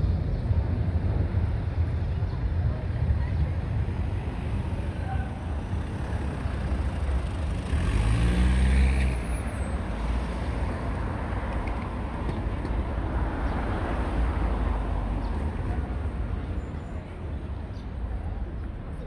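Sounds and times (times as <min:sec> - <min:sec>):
city traffic rumble: 0:00.0 - 0:19.0
vehicle passing close: 0:07.0 - 0:10.7.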